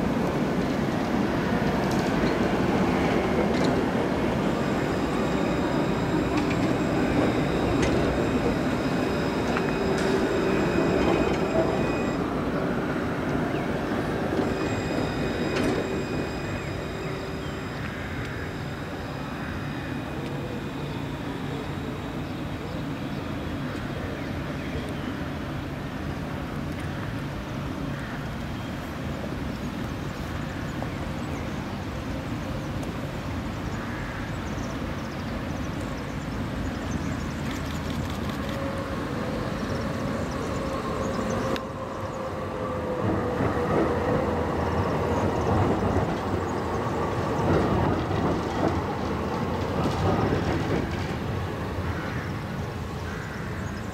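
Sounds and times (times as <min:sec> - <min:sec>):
tram rolling rumble: 0:00.0 - 0:53.9.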